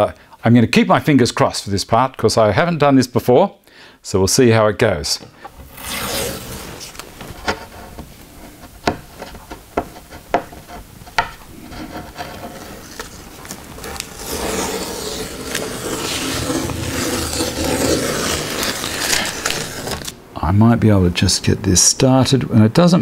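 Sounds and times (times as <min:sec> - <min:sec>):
tape rustling and rubbing: 0:05.4 - 0:20.2.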